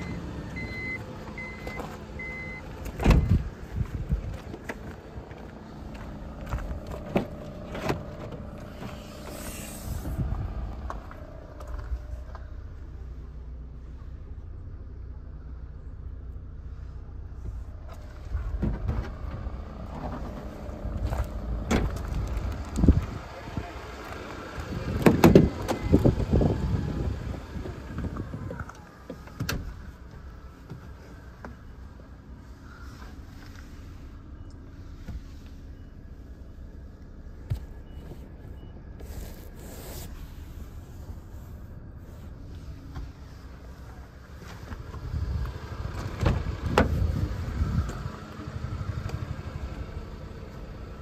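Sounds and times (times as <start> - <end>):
low handheld rumble: 0.0 - 51.0
car door clunks: 2.8 - 3.5, 24.9 - 26.1.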